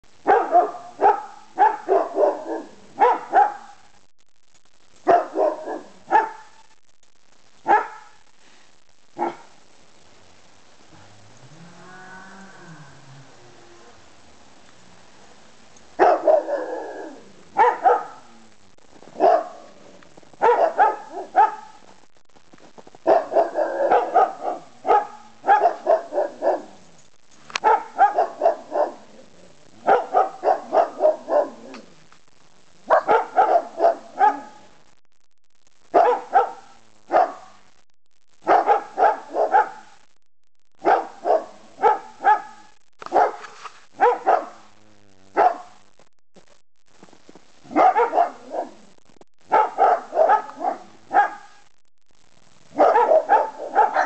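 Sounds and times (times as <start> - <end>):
dog barking: 0.2 - 3.9, 5.0 - 6.6, 7.6 - 8.2, 9.2 - 9.6, 16.0 - 18.3, 19.1 - 19.8, 20.4 - 21.8, 23.0 - 26.8, 27.6 - 29.1, 29.8 - 31.7, 32.8 - 34.7, 35.9 - 37.6, 38.4 - 40.0, 40.8 - 44.7, 45.3 - 45.8, 47.6 - 48.8, 49.5 - 51.6, 52.7 - 54.0.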